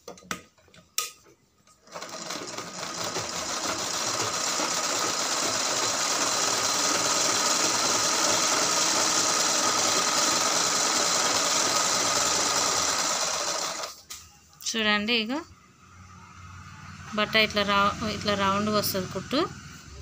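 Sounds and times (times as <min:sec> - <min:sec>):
sewing machine stitching: 0:01.7 - 0:14.0.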